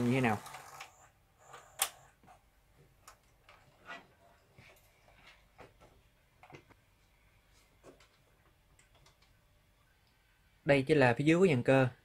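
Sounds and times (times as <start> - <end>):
faint clicks and knocks: 7.8 - 10.2.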